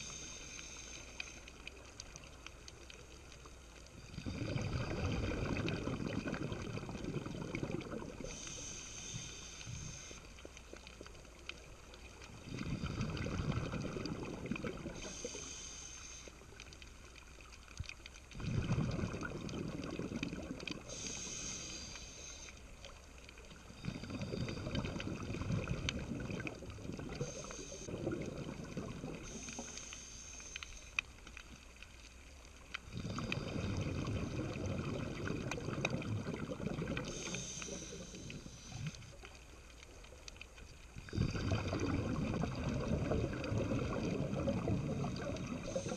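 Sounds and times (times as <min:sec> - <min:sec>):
regulator inhale hiss: 0:00.0 - 0:01.9, 0:08.2 - 0:10.7, 0:14.9 - 0:16.6, 0:20.8 - 0:23.0, 0:27.0 - 0:28.0, 0:29.1 - 0:31.4, 0:32.8 - 0:34.0, 0:36.9 - 0:39.4, 0:44.8 - 0:45.9
bubbling regulator exhale: 0:03.9 - 0:10.2, 0:12.3 - 0:15.9, 0:18.3 - 0:22.5, 0:23.6 - 0:30.7, 0:32.8 - 0:39.4, 0:41.0 - 0:45.9.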